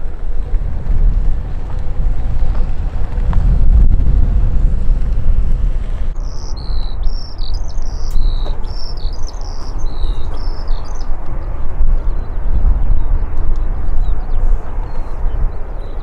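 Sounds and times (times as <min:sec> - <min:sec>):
low rumble: 0:00.0 - 0:16.0
songbird singing: 0:06.0 - 0:16.0.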